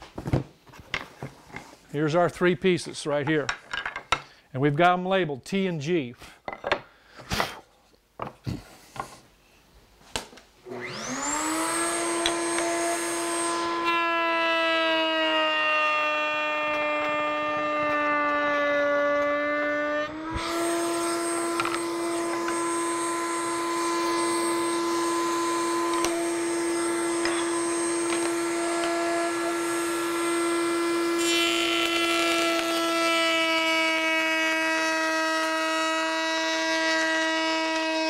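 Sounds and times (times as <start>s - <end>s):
router whining: 10.7s - 38.0s.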